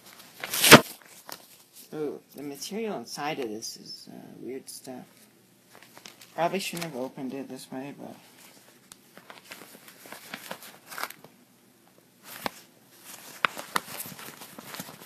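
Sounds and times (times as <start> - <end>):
paper packaging rustling: 0.0 - 1.9, 5.1 - 7.1, 8.2 - 11.3, 12.2 - 15.0
sharp paper snaps: 0.4 - 1.4.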